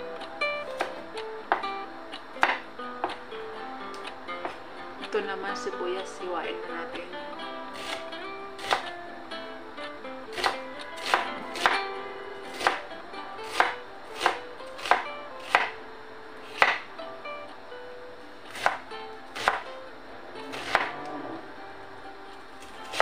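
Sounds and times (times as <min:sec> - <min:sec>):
knife chopping on wooden board: 0:08.6 - 0:08.9, 0:10.3 - 0:11.8, 0:12.5 - 0:12.8, 0:13.5 - 0:15.8, 0:16.6 - 0:16.8, 0:20.5 - 0:20.9.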